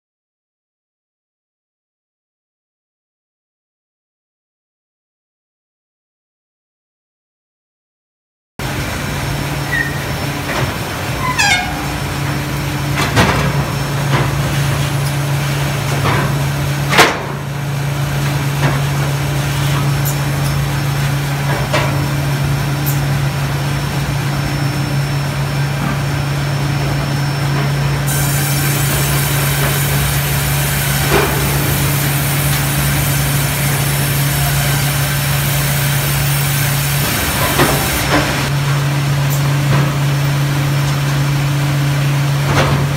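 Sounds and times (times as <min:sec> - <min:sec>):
low machine hum: 0:08.6 - 0:42.9
short falling squeal: 0:09.7 - 0:10.3, 0:11.2 - 0:12.2.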